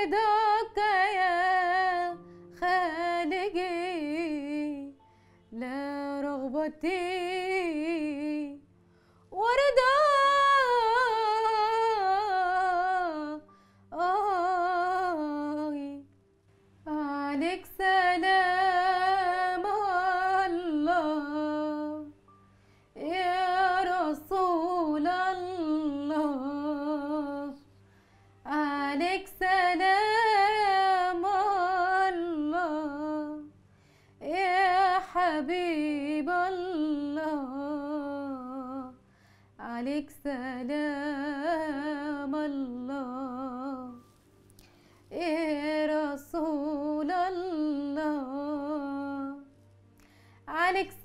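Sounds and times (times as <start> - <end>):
woman singing unaccompanied: 0.0 - 8.6, 9.3 - 16.1, 16.9 - 22.2, 23.0 - 27.6, 28.4 - 33.5, 34.2 - 39.0, 39.6 - 44.1, 45.1 - 49.5, 50.5 - 51.0
breaths: 2.2 - 2.5, 5.0 - 5.5, 8.8 - 9.3, 13.4 - 13.9, 22.4 - 23.0, 27.7 - 28.4, 33.6 - 34.2, 39.0 - 39.6, 44.5 - 45.1, 50.0 - 50.5.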